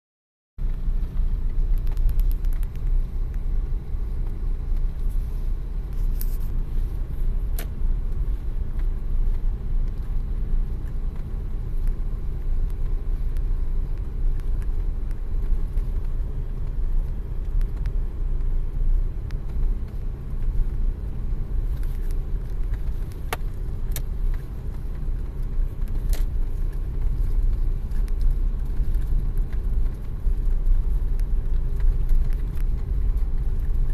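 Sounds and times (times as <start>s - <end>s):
car engine and tyres rumbling: 0.6s - 33.9s
sharp clicks: 1.5s - 3.5s.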